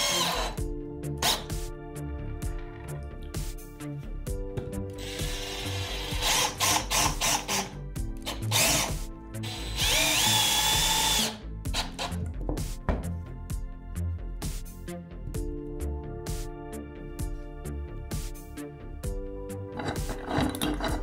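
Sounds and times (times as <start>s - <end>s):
cordless drill driving screw: 0.0s - 0.6s, 5.0s - 12.2s.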